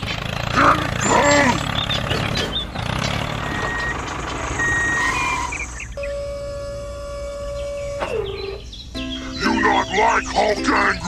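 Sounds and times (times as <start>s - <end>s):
tractor engine running: 0.0s - 11.0s
held pitched tone: 4.6s - 11.0s.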